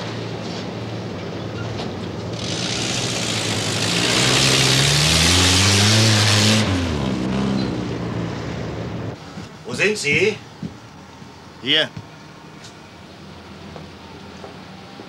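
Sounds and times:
off-road vehicle accelerating past: 2.2 - 9.2.

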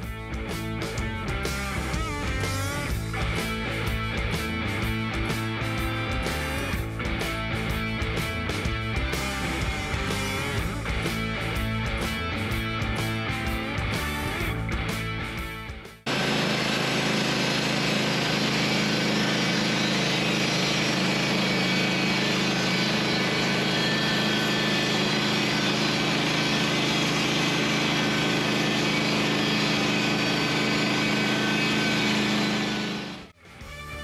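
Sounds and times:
band sawmill cutting log: 5.2 - 6.8, 16.1 - 33.3.

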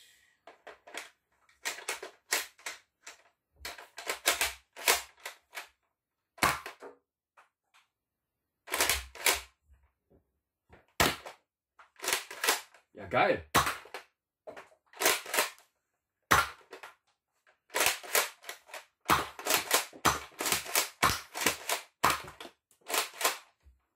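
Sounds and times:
toy blaster plastic clacks: 0.6 - 5.7, 8.7 - 9.5, 11.0 - 12.8, 14.9 - 15.6, 16.4 - 17.0, 17.7 - 23.6.

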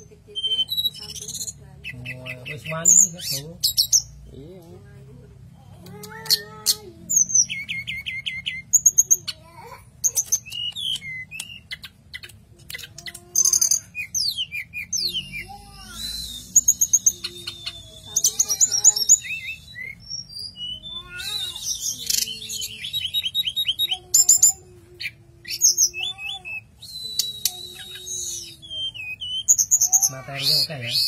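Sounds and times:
bird singing whistles and trills: 10.3 - 12.2, 13.4 - 31.0.

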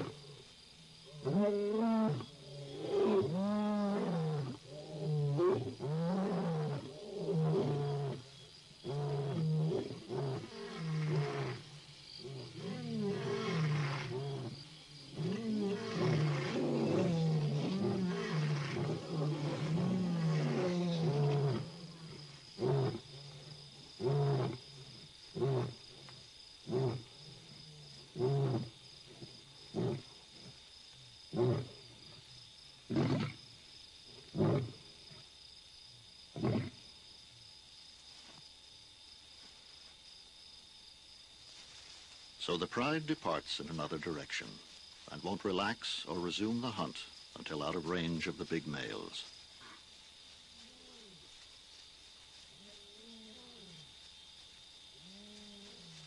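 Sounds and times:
lions roaring: 12.2 - 24.6, 31.3 - 31.8, 32.9 - 33.4.

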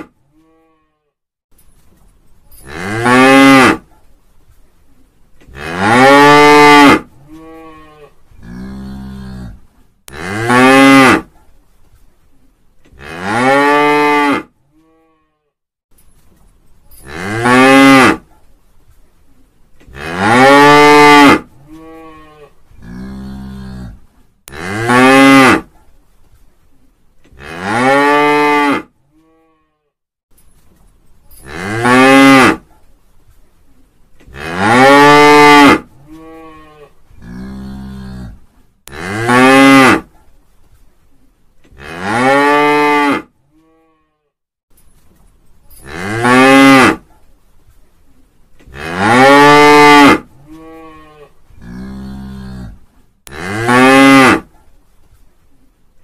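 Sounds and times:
cow mooing: 48.8 - 54.4.

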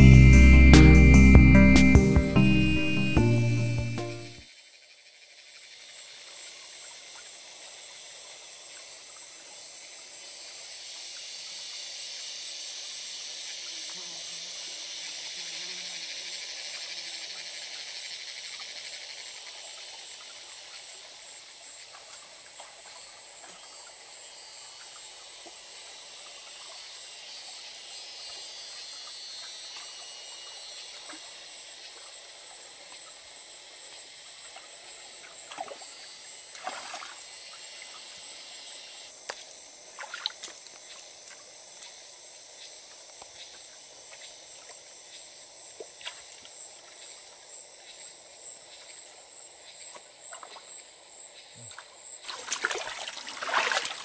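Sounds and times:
thin high whine: 0.0 - 4.4
splashing footsteps in water: 40.0 - 40.6, 52.3 - 54.0
stream trickling over rocks: 52.2 - 54.0.

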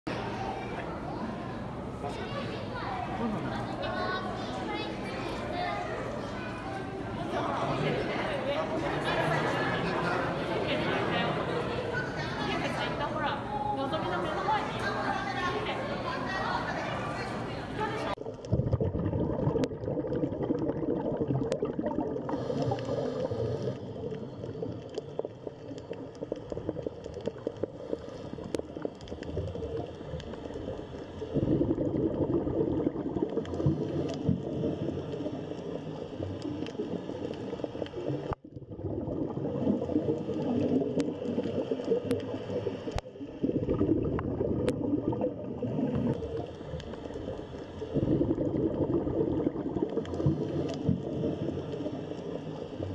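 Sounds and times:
underwater gurgling and bubbling: 18.1 - 52.9.

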